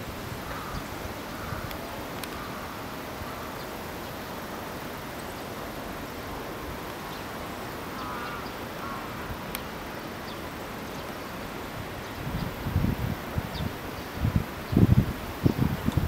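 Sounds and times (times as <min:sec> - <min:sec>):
wind: 0:00.0 - 0:16.0
faint bird calls: 0:00.4 - 0:04.4, 0:07.0 - 0:11.4.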